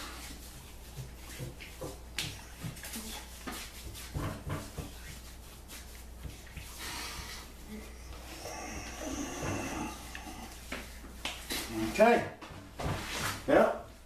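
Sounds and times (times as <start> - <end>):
hands patting and rubbing skin: 0.2 - 7.6, 10.5 - 11.7.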